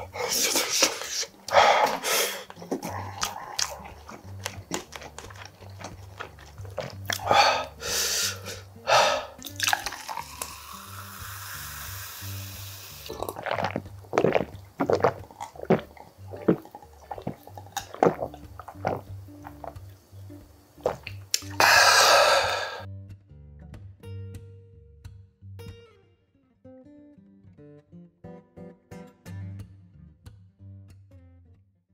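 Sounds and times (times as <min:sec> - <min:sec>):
person gulping and breathing: 0:00.0 - 0:20.0, 0:20.8 - 0:22.9
quiet background music: 0:00.0 - 0:31.5
drink pouring into a glass: 0:09.3 - 0:19.8.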